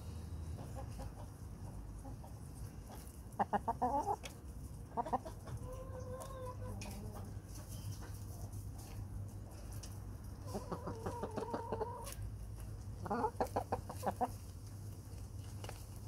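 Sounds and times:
hens clucking: 0.4s - 15.8s.

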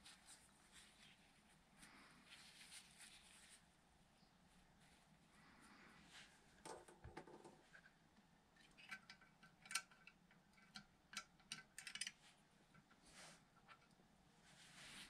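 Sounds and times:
tools clicking and tapping: 8.6s - 12.9s.

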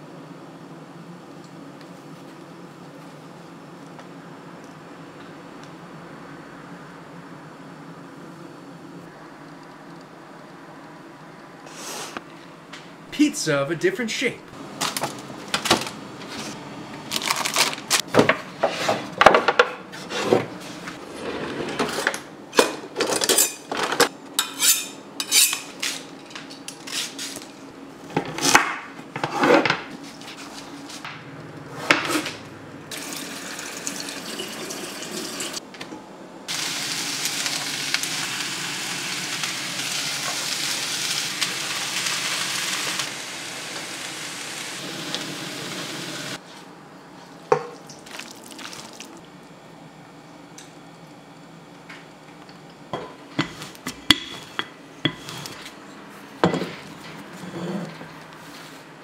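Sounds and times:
dishes and utensils clattering: 21.8s - 25.7s
skillet sizzling: 32.9s - 35.6s, 36.5s - 46.4s.

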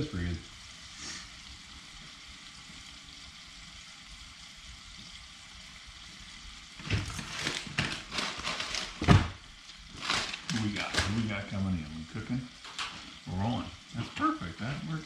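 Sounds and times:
fish sizzling in oil: 0.0s - 15.0s
knocks and clatter on table: 6.8s - 9.4s.

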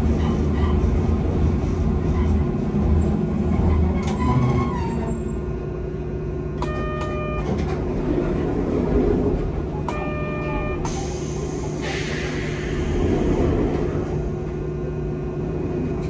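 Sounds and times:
tram wheels and motor rumble: 0.0s - 16.0s.

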